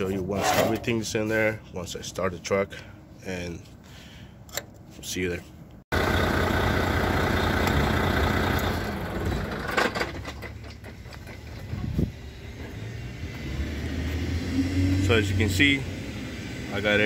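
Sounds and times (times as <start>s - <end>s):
diesel truck engine idling: 5.9s - 9.8s.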